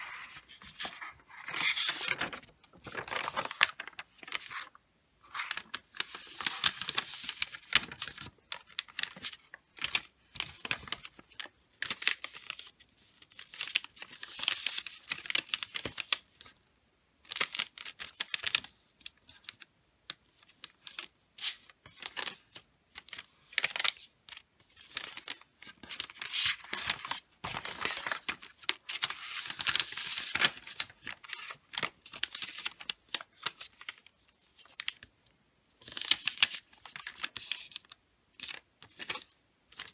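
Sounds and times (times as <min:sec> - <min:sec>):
wrapping paper rustling: 0:00.0 - 0:16.5, 0:20.4 - 0:35.2, 0:35.8 - 0:39.9.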